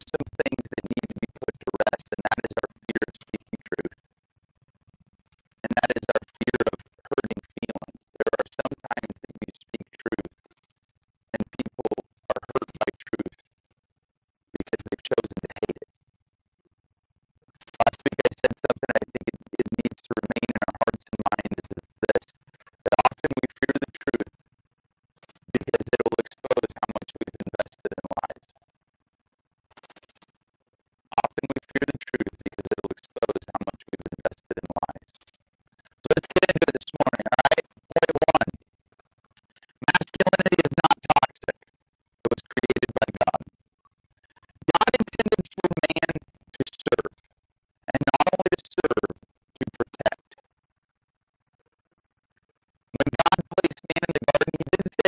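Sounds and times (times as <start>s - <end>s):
man's garbled voice: 0.1s - 3.9s, 5.7s - 10.2s, 11.4s - 13.3s, 14.6s - 15.8s, 17.8s - 22.2s, 22.9s - 24.2s, 25.6s - 28.4s, 31.1s - 35.0s, 36.1s - 38.5s, 39.8s - 41.5s, 42.3s - 43.4s, 44.7s - 47.1s, 47.9s - 50.2s, 53.0s - 55.0s.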